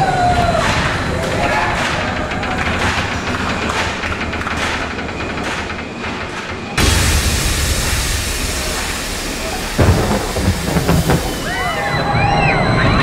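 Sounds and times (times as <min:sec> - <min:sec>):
loud rushing hiss: 0:06.8 - 0:11.8
heavy thumps: 0:09.8 - 0:11.8
rumbling thunder: 0:09.8 - 0:11.9.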